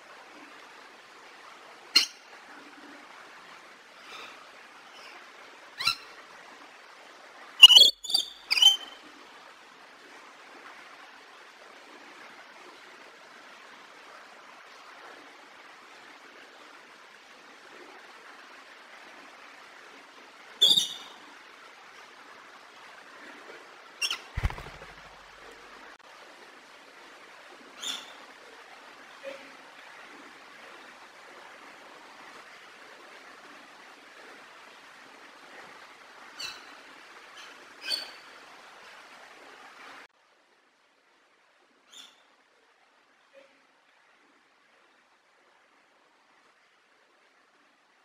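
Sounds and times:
lorikeet squawking: 7.6s - 9.0s, 20.6s - 21.1s.

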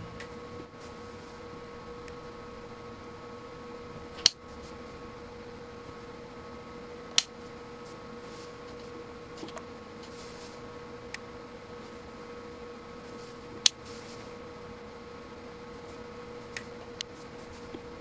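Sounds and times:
steady electrical hum: 0.0s - 18.0s.

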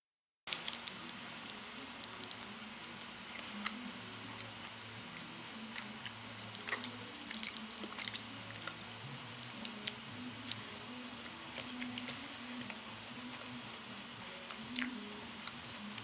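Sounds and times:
faint low hum: 0.5s - 16.0s
person biting and chewing snack: 5.7s - 8.8s.

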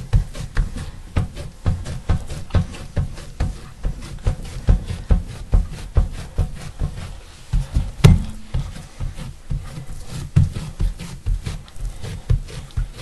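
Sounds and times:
hands patting dough on board: 0.0s - 13.0s
sharp knock: 8.0s - 8.6s.

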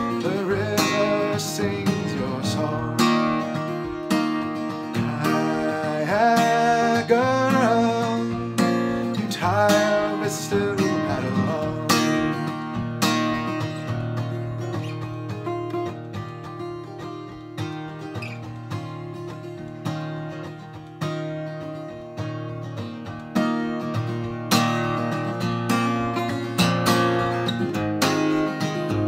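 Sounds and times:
man singing: 0.0s - 4.0s, 4.7s - 12.8s
acoustic guitar strumming: 0.0s - 29.0s.

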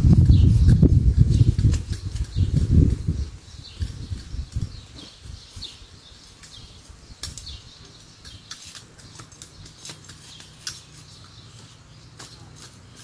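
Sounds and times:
birds chirping: 0.0s - 13.0s
hand hoes scraping soil: 0.0s - 13.0s.

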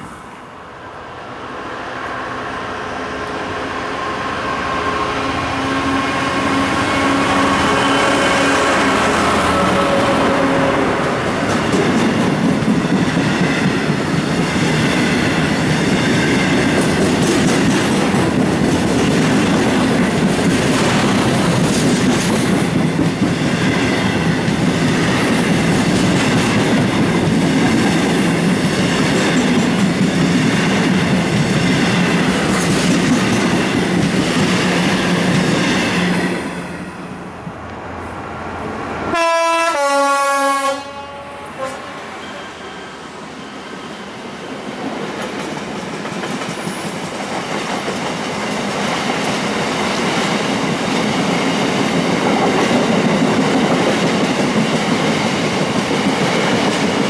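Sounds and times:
freight train rumbling past: 0.0s - 57.0s
locomotive horn: 3.1s - 11.1s, 39.1s - 43.1s.

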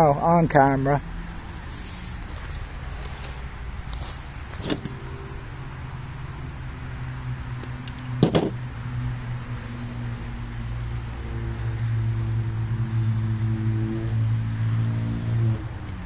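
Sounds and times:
steady low hum: 1.2s - 13.6s
sharp knocks of tools: 7.6s - 8.6s.

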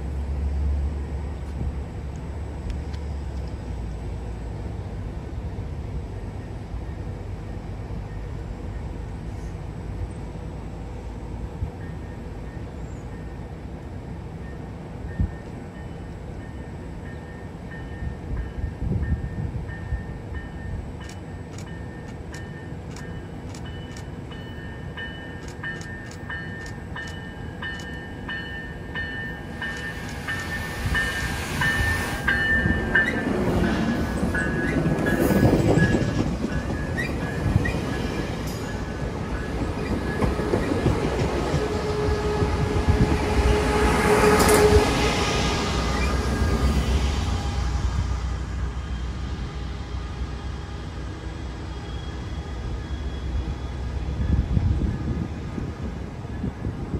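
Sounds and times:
train rumbling past: 0.0s - 56.9s
high ringing with regular ticks: 20.4s - 30.6s.

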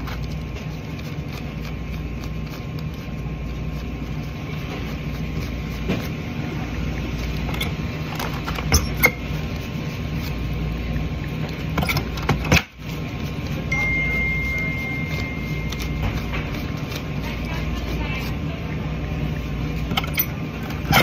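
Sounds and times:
paper bills being handled: 0.0s - 21.0s
thin high tone: 13.7s - 16.8s.

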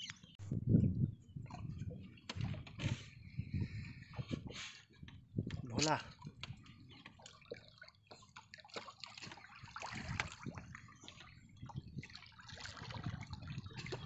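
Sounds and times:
water splashing and dripping: 5.4s - 14.0s.

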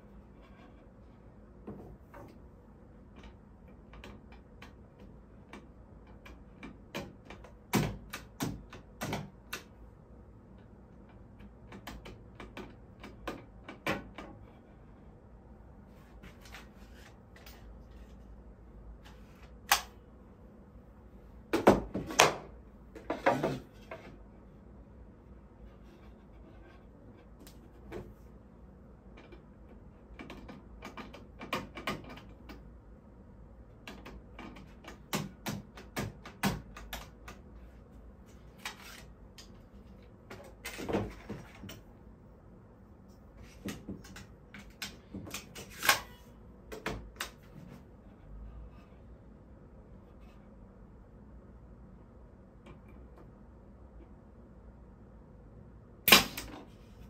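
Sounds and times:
brad nailer snapping: 56.1s - 56.5s.

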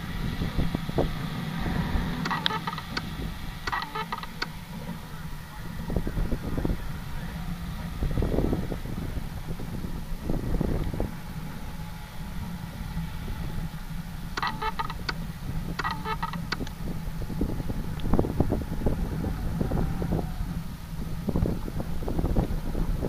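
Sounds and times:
wind buffeting microphone: 0.0s - 23.0s
rapid electronic beeping: 2.2s - 3.1s, 3.7s - 4.6s, 14.4s - 15.2s, 15.8s - 16.7s.

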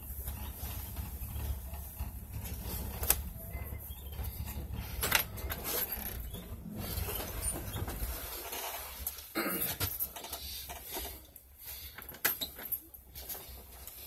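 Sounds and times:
vehicle engine idling: 0.0s - 7.6s.

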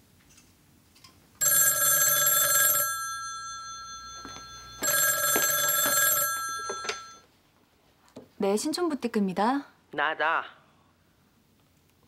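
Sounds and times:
telephone bell ringing: 1.4s - 7.2s.

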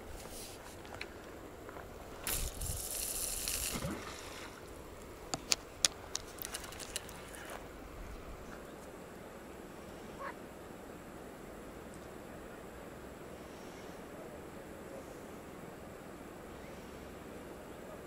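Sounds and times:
sharp clicks of rod and reel: 2.2s - 4.0s, 5.3s - 7.4s
line running off spinning reel: 2.2s - 4.6s.

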